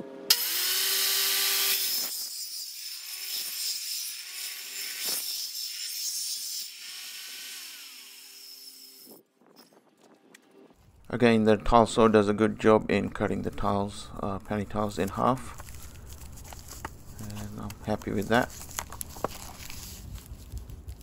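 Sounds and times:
tile saw whining: 0:00.0 - 0:09.2
saw blade grinding through tiles: 0:00.3 - 0:09.2.

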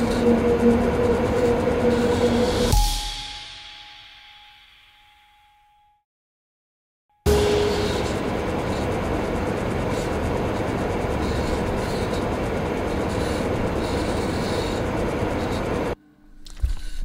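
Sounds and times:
dense noise drone with low hum: 0:00.0 - 0:02.8, 0:07.3 - 0:16.8.

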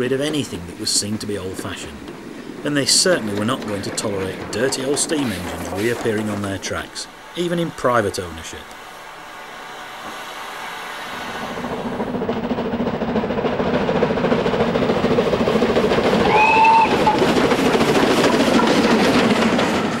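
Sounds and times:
steam locomotive running: 0:00.0 - 0:20.0
train whistle blast: 0:16.2 - 0:17.2.

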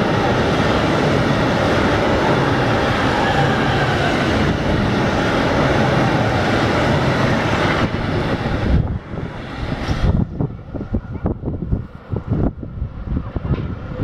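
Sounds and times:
wind on microphone: 0:00.0 - 0:14.0
train wheels clattering on track: 0:13.2 - 0:14.0.

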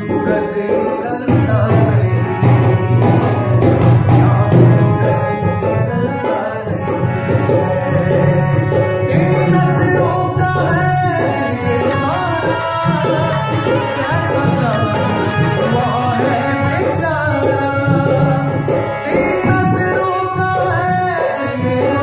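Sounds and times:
drum strokes: 0:00.0 - 0:21.1
harmonium: 0:00.0 - 0:22.0
man singing: 0:00.0 - 0:22.0.

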